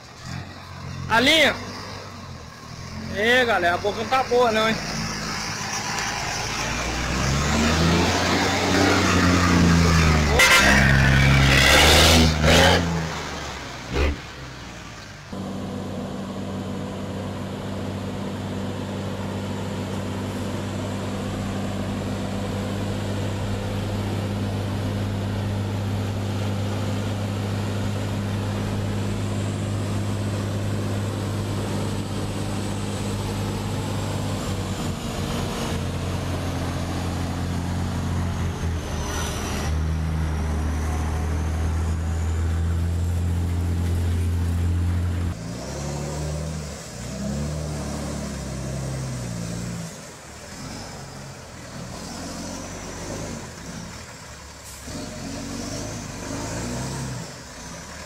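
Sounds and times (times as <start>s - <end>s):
truck diesel engine running: 12.9s - 39.1s.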